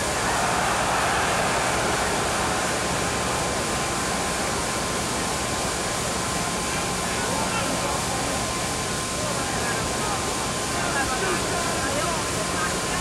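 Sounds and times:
arena crowd noise: 0.0 - 13.0
broadcast recording hiss: 0.0 - 13.0.

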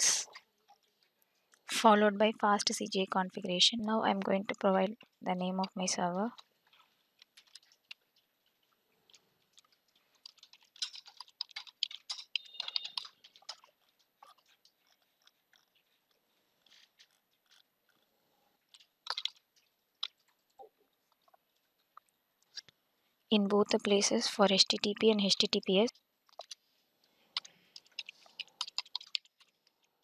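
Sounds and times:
keyboard typing: 10.2 - 14.5.

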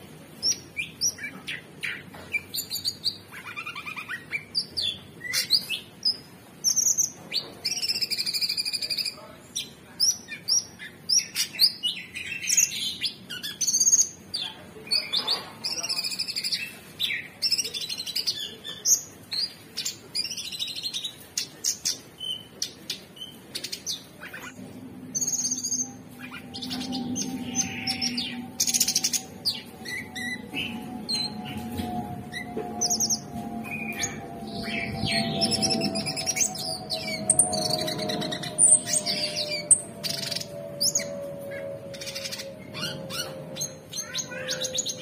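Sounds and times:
bird singing chirps and trills: 0.4 - 45.0
low steady hum: 24.2 - 45.0.

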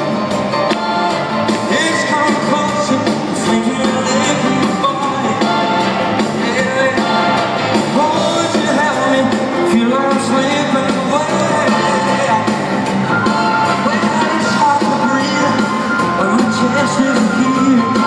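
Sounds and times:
rock and roll band playing: 0.0 - 18.0
man singing: 1.6 - 18.0.

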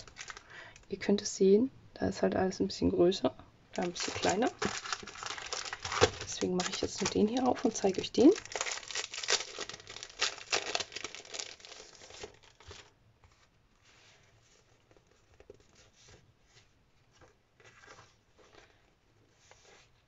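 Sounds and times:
cellophane sleeve crinkling: 0.0 - 0.9, 3.7 - 13.0
paper sheets rustling: 3.8 - 20.0.

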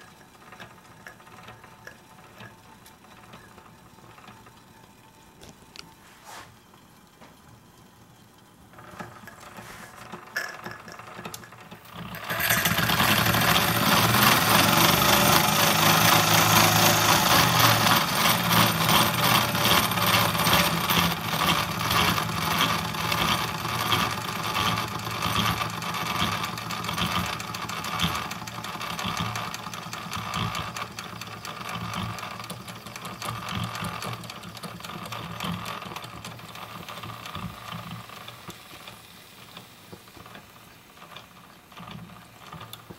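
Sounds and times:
metal gears rattling: 8.8 - 27.2.

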